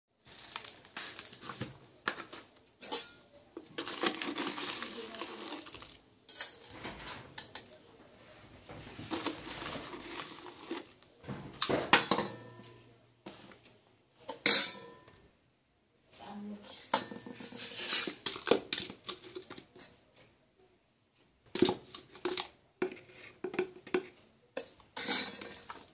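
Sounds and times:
spoon scraping metal bowls: 0:02.8 - 0:07.8, 0:16.6 - 0:19.9, 0:21.6 - 0:25.9.

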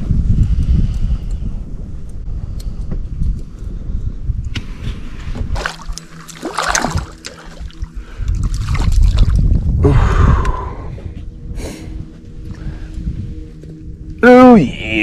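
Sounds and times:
wind on microphone: 0:00.0 - 0:15.0
water lapping against boat hull: 0:05.4 - 0:09.4.

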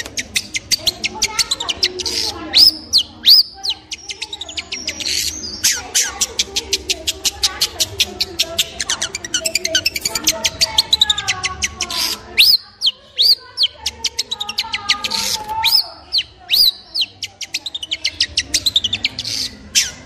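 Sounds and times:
bird warbling phrases: 0:00.0 - 0:20.0
high whistled bird notes: 0:01.3 - 0:06.1, 0:12.0 - 0:17.1.

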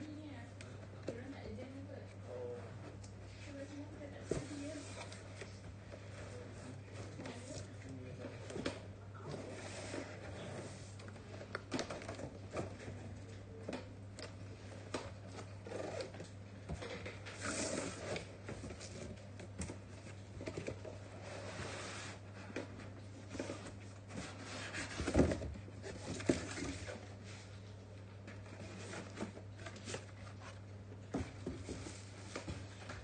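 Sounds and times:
steady low hum: 0:00.0 - 0:33.0
cardboard flaps rustling and scraping: 0:04.2 - 0:05.4, 0:14.9 - 0:27.5, 0:28.4 - 0:33.0.

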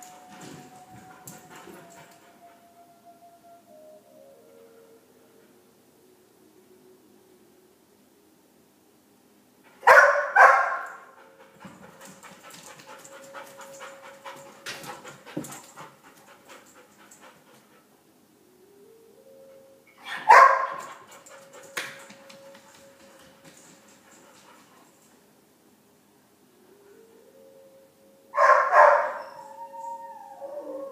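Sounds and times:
dog barking: 0:09.8 - 0:11.1, 0:20.0 - 0:20.8, 0:28.4 - 0:29.2
dog panting: 0:11.2 - 0:18.0, 0:20.9 - 0:25.1.

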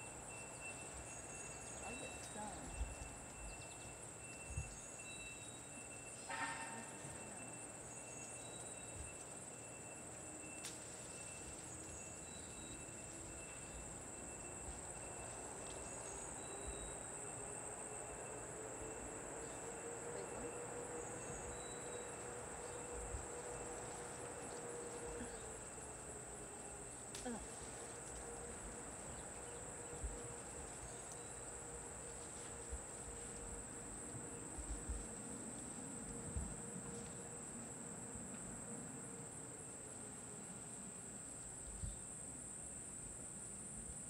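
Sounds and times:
insects buzzing: 0:00.0 - 0:44.0.

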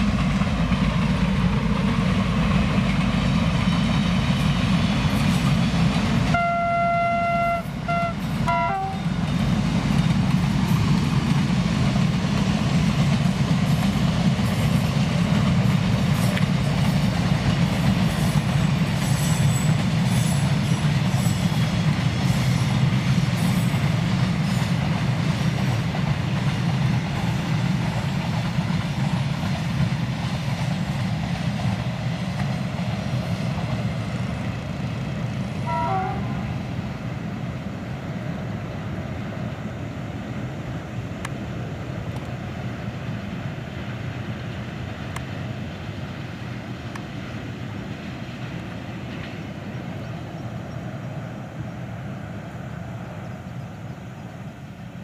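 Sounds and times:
freight train rumbling past: 0:00.0 - 0:55.0.

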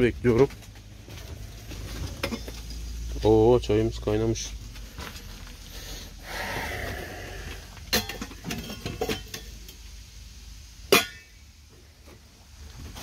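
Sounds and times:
metal clinks and knocks: 0:00.2 - 0:03.0, 0:07.9 - 0:09.8.

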